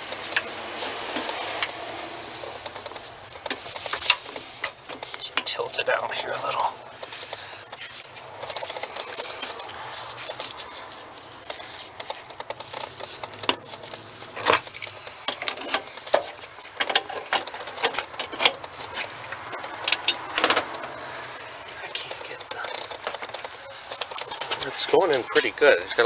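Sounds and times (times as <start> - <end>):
metal parts clicking and scraping: 0.1 - 5.7, 6.4 - 21.4.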